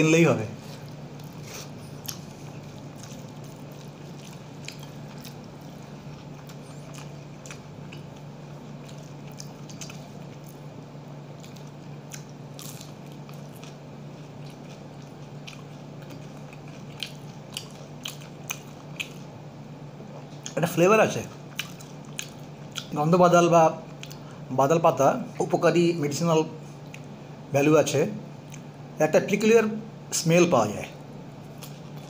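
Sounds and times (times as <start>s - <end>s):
steady low hum: 0.0s - 32.0s
man chewing food: 0.6s - 20.6s, 21.2s - 23.0s, 23.8s - 24.5s, 26.6s - 27.2s, 28.4s - 28.9s, 31.0s - 32.0s
wet mouth clicks and crunches: 0.9s - 10.6s, 21.3s - 23.0s.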